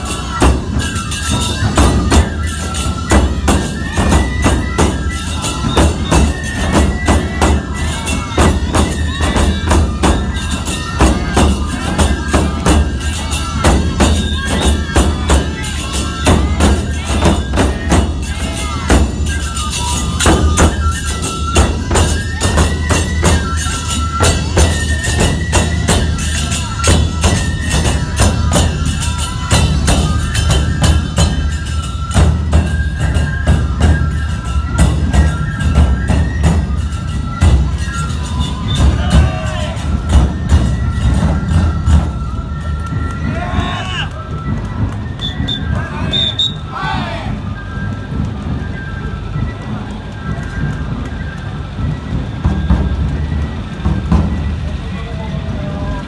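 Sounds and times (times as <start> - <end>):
hand cymbals clashing: 0.0 - 42.2
bamboo flutes melody: 0.0 - 56.0
taiko drums beating: 0.0 - 56.0.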